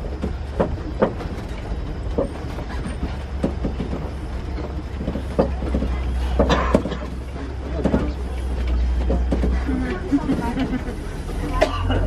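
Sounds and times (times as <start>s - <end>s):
vehicle knocks and creaks: 0.0s - 10.9s
vehicle engine and road rumble: 0.0s - 12.0s.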